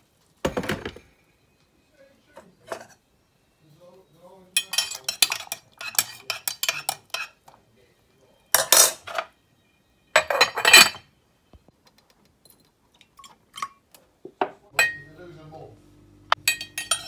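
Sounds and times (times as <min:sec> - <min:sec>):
household objects clattering: 0:00.4 - 0:01.2.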